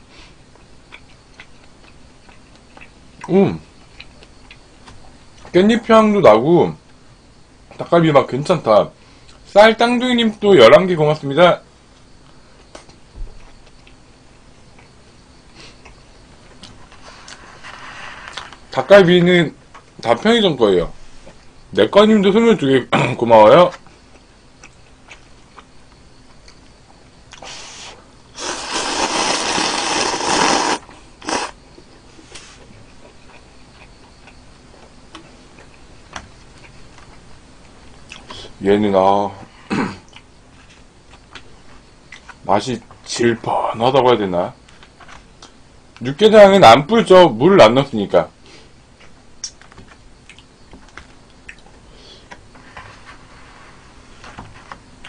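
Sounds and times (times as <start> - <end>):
person slurping noodles: 27.4 - 31.6.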